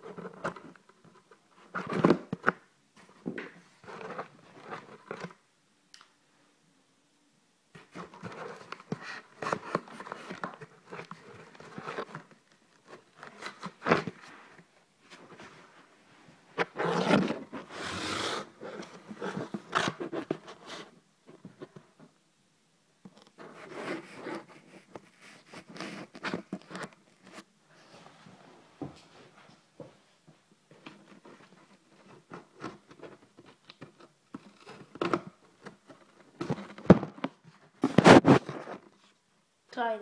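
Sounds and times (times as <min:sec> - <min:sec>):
package rustling and scraping: 0:00.0 - 0:05.4, 0:07.8 - 0:15.9, 0:16.5 - 0:21.8, 0:23.2 - 0:27.5, 0:30.8 - 0:39.2.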